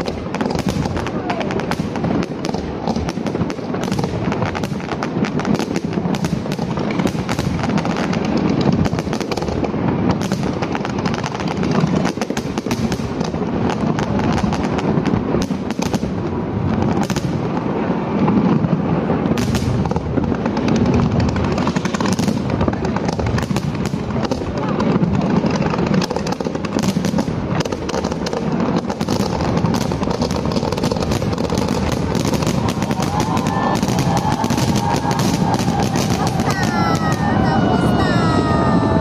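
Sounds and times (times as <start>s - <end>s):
fireworks bursting and crackling: 0.0s - 39.0s.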